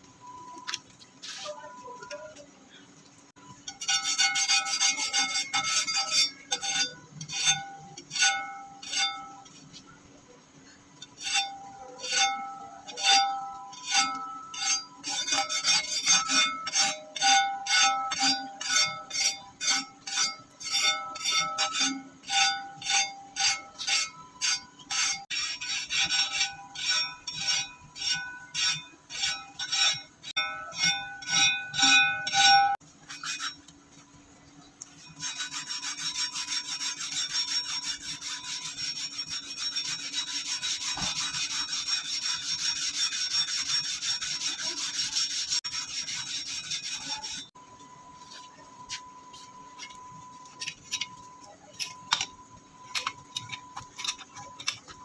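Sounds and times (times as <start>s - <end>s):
sandpaper rubbing on blade: 1.2s - 1.7s, 3.7s - 9.8s, 11.2s - 30.1s, 30.7s - 33.6s, 35.0s - 47.5s
hand file rasping on steel blade: 3.7s - 9.6s, 11.0s - 33.7s, 35.0s - 47.6s
ringing tone from blade: 11.3s - 33.6s, 42.7s - 55.0s.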